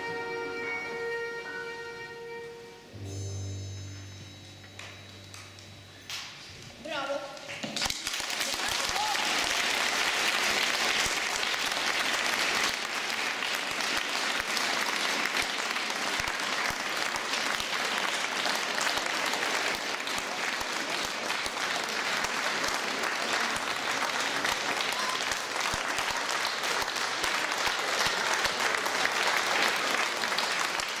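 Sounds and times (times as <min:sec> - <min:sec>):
audience applauding: 0:07.4 - 0:31.0.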